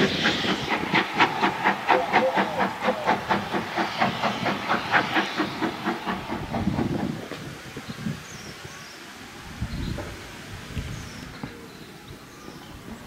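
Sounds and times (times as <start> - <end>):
steam locomotive exhaust chuffing: 0.0 - 8.4
steam hissing: 0.0 - 13.0.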